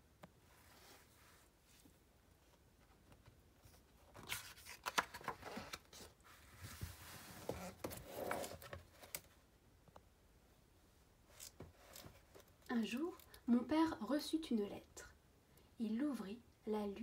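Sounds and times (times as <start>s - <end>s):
book page turning: 3.2s - 9.3s.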